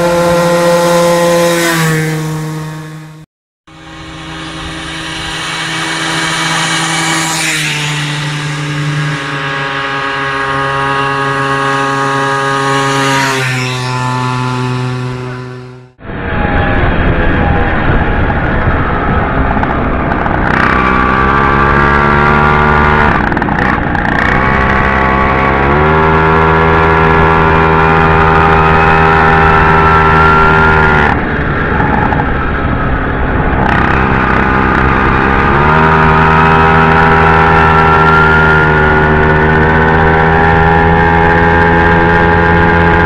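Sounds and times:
two-stroke moped engine running: 0:00.0 - 0:16.0, 0:18.0 - 0:43.0.

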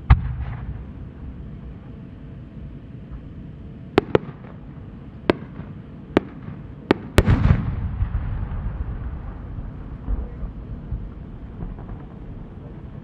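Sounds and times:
fireworks mortar boom: 0:00.0 - 0:01.4, 0:03.9 - 0:13.0
fireworks cracking high up: 0:03.9 - 0:12.6.

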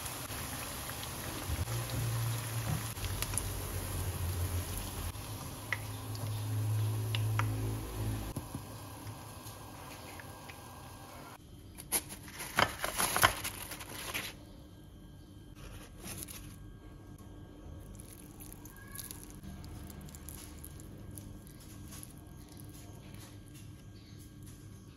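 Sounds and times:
crisp crackling and rustling: 0:11.9 - 0:14.4.

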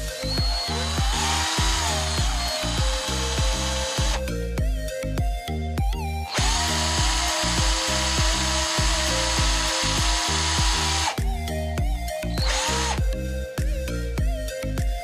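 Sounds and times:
background music with steady beat: 0:00.0 - 0:15.0
cordless drill running: 0:00.2 - 0:04.2, 0:06.3 - 0:11.2, 0:12.4 - 0:13.0.

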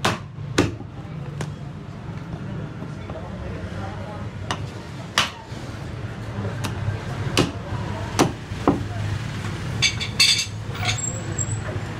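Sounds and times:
cleaver chopping through bone: 0:06.6 - 0:07.6.

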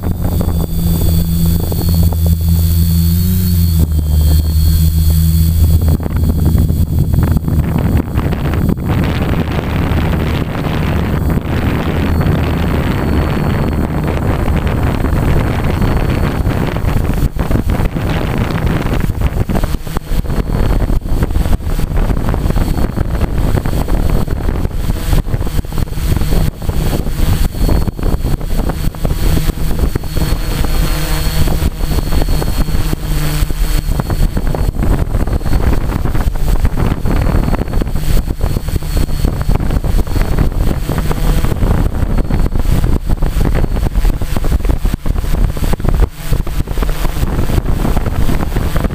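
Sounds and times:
drone motors whining: 0:00.0 - 0:48.9
wind buffeting microphone: 0:00.0 - 0:48.9.

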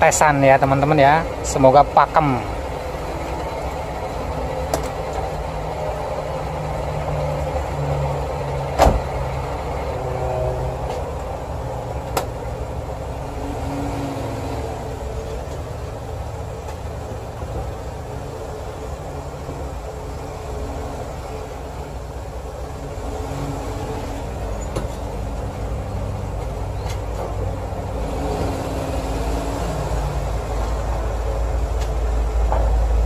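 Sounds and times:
car engine idling: 0:00.0 - 0:33.0
car door thump: 0:08.8 - 0:09.1.

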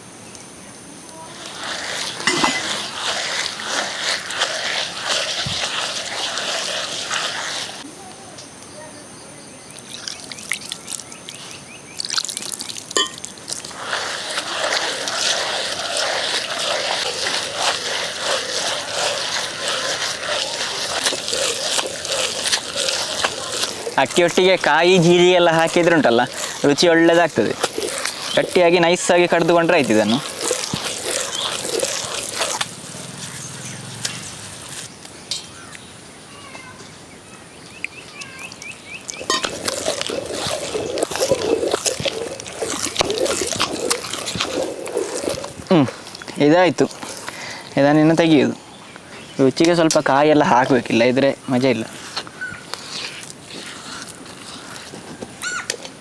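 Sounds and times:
stone grinder grinding wet rice: 0:01.2 - 0:07.9, 0:12.0 - 0:35.4, 0:38.6 - 0:48.6, 0:49.4 - 0:56.0
bird chirping: 0:33.2 - 0:39.4.

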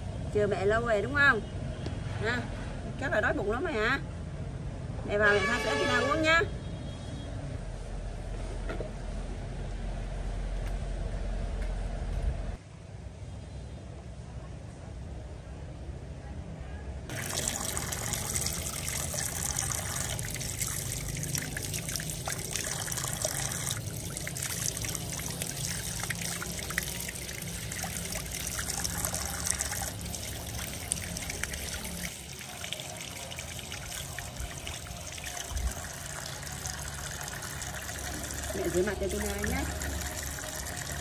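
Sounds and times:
water running from a tap: 0:17.1 - 0:41.0
water splashing: 0:17.1 - 0:41.0.

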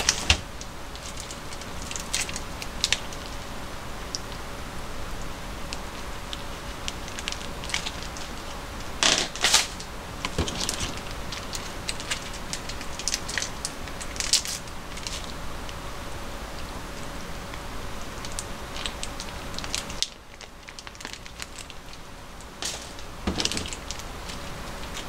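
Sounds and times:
plastic sachets crinkling: 0:00.0 - 0:03.5, 0:05.7 - 0:15.8, 0:18.1 - 0:25.0
plastic sachet rasps: 0:06.3 - 0:15.3, 0:18.2 - 0:22.0.

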